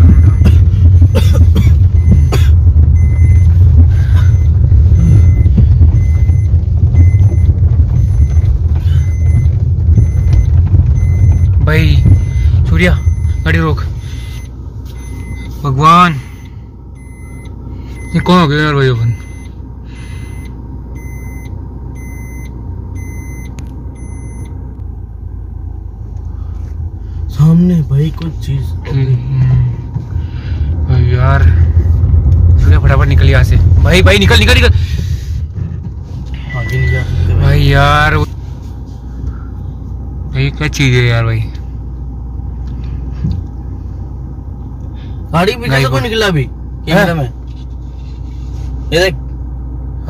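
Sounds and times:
car engine and road rumble: 0.0s - 50.0s
faint beep: 3.0s - 15.6s, 19.0s - 24.6s, 36.4s - 37.5s.

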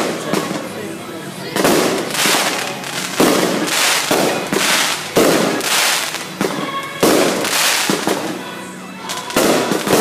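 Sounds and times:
fireworks shells bursting: 1.6s - 8.4s, 9.0s - 10.0s
small firework pops: 1.6s - 8.4s, 9.1s - 10.0s.

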